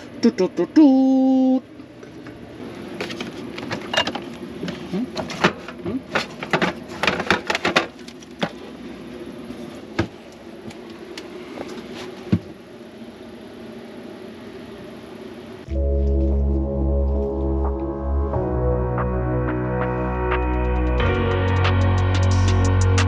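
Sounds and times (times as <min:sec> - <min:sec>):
low hum: 0:12.7 - 0:23.0.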